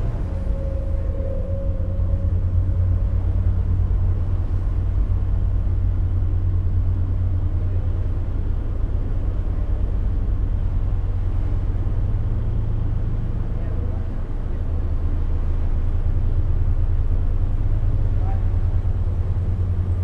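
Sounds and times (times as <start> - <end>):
boat engine droning: 0.0 - 20.0.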